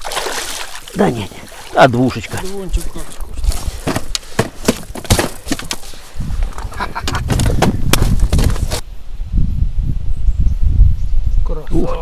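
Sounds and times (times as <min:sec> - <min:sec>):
fish thrashing in a net: 0:00.0 - 0:01.0
wind rumble on microphone: 0:06.0 - 0:12.0.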